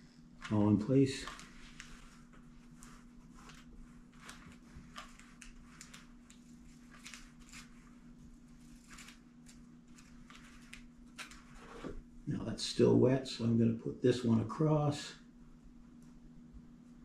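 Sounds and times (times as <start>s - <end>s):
steady low hum: 0.0s - 17.0s
hands rustling mesh tape: 1.2s - 11.9s.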